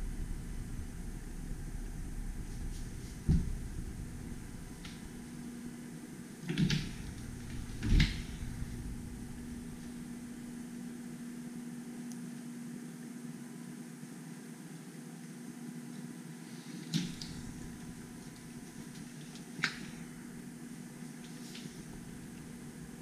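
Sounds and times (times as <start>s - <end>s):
steady low tone: 0.0s - 11.5s, 17.1s - 19.0s
indoor hum: 0.0s - 23.0s
dull knocks: 1.9s - 5.2s.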